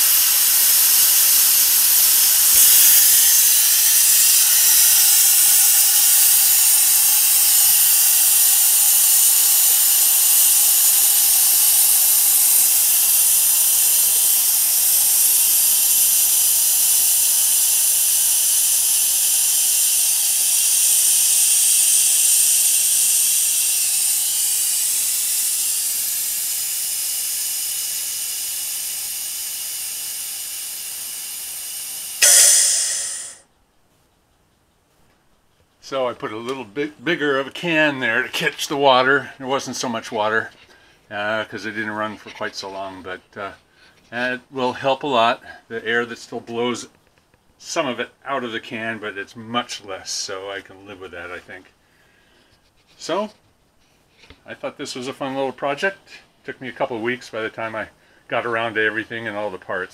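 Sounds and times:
compressed air hissing: 0.0s - 33.4s.

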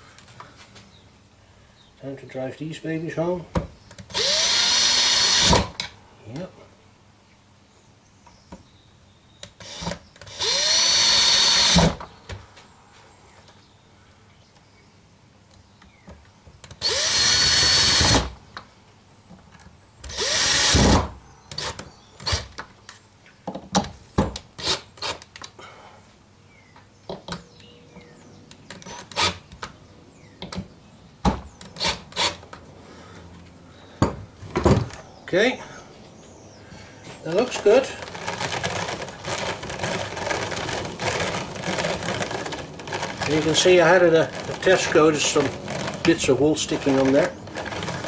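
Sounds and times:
drill driving screws into wood: 4.1s - 5.9s, 9.6s - 12.0s, 16.8s - 18.4s, 20.1s - 22.6s, 24.6s - 25.3s, 28.8s - 29.4s, 31.8s - 32.4s, 38.0s - 46.0s, 46.8s - 48.0s.

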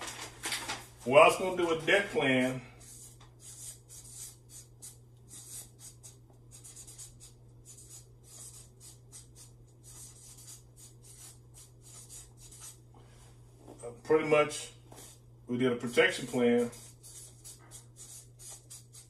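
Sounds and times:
steady low hum: 0.0s - 19.0s
marker writing on paper: 1.6s - 12.8s, 14.9s - 15.2s, 16.0s - 19.0s.

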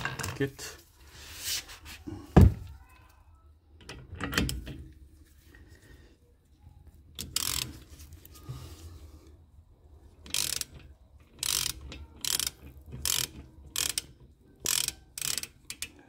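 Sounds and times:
ratchet wrench clicking: 7.2s - 7.9s, 10.2s - 16.0s.

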